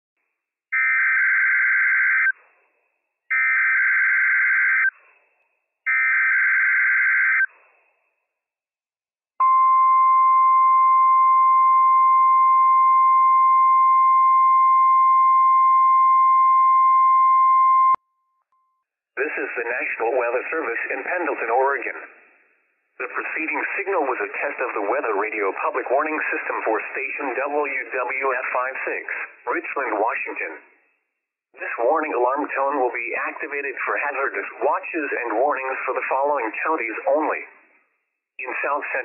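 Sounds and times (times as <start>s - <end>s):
steady warning alarm tone: 3.3s - 4.9s.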